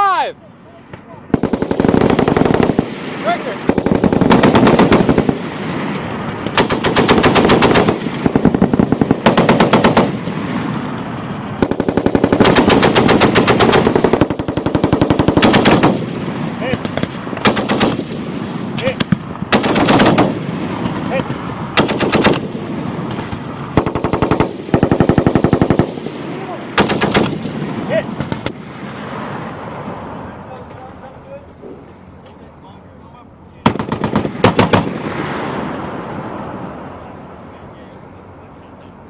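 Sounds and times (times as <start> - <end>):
heavy machine gun bursts: 3.7 - 5.4, 6.6 - 10.2, 11.6 - 16.4, 17.4 - 18.4, 19.5 - 20.4, 21.8 - 22.9, 26.8 - 27.7.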